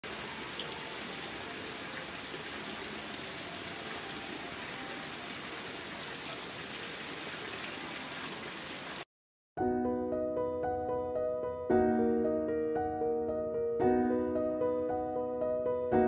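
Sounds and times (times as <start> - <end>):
water splashing into a pond: 0.0 - 9.1.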